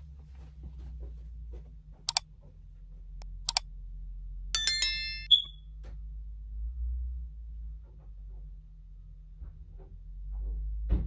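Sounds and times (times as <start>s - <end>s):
bright bell chime: 4.6s - 5.5s
button clicks: 4.6s - 5.5s
short high ding: 4.6s - 5.5s.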